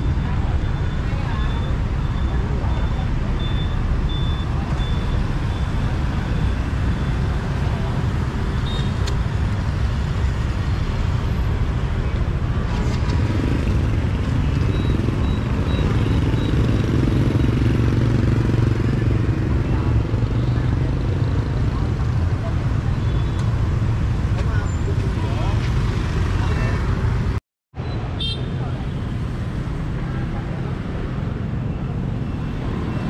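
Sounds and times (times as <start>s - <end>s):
high beeps: 0.0s - 7.3s, 14.6s - 17.7s
street traffic rumble: 0.0s - 33.0s
motorbike passing: 12.4s - 22.9s.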